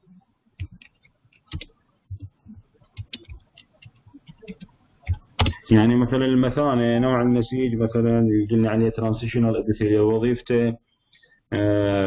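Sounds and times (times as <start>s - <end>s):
keyboard typing: 0.6s - 5.7s.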